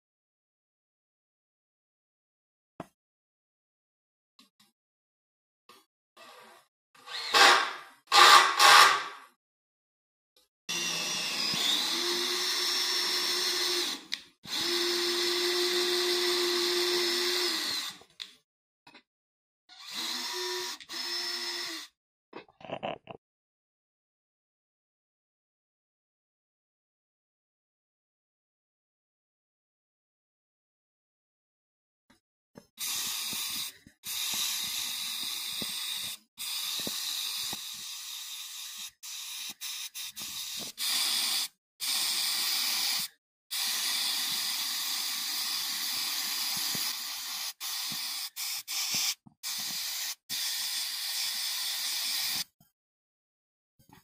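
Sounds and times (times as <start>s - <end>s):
cordless drill running: 7.0s - 9.1s, 10.7s - 18.0s, 19.8s - 21.9s, 32.8s - 52.4s
paint spray gun hissing: 32.8s - 52.4s.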